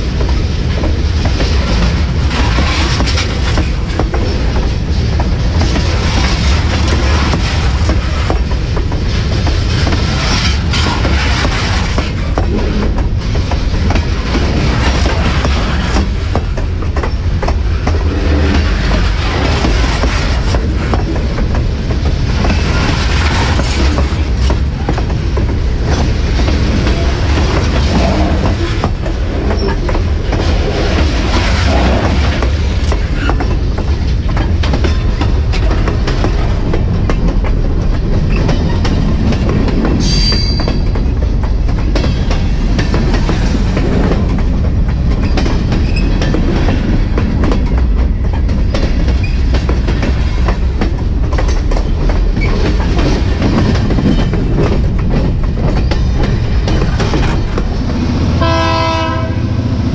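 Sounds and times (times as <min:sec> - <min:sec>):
freight train wheels clattering: 0:00.0 - 0:59.9
high-pitched wheel squeal: 0:40.0 - 0:40.8.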